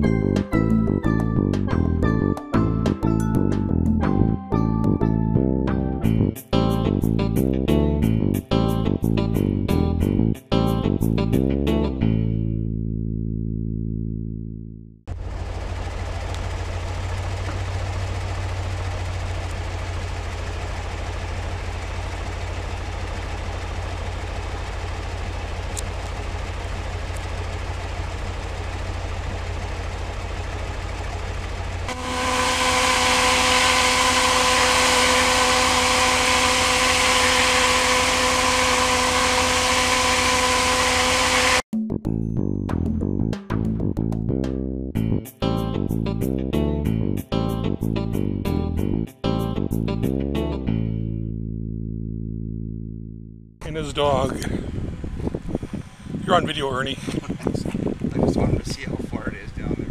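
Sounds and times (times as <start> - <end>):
low steady rumble: 12.5 - 41.6, 50.8 - 59.9
steady hum: 15.1 - 41.6.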